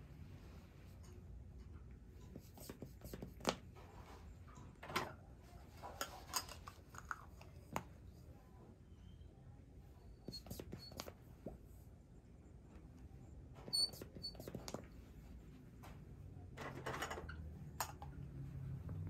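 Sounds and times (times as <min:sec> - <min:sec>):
plastic cups clicking: 0:06.0 - 0:07.9.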